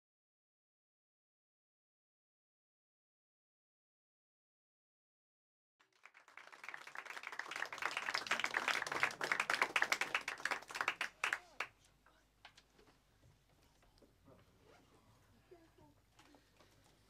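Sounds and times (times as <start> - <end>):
audience applauding: 5.8 - 11.7.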